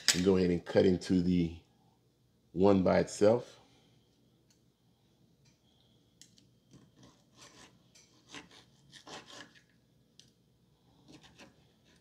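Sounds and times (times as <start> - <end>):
knife sawing through meat: 7.0 - 9.6, 11.1 - 12.0.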